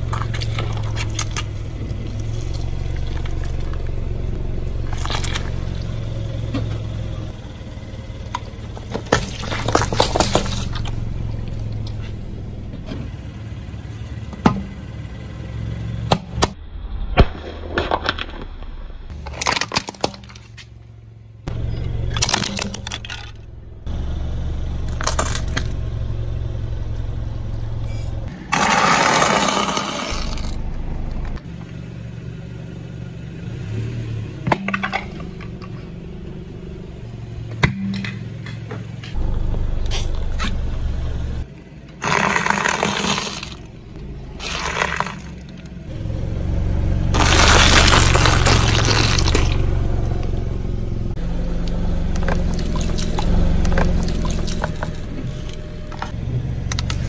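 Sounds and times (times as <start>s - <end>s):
low engine hum: 0.0s - 16.9s, 20.2s - 42.0s, 43.2s - 57.0s
tyre crushing packaged items: 19.1s - 20.7s, 42.0s - 43.7s, 44.4s - 45.7s, 47.2s - 49.6s, 52.2s - 55.2s.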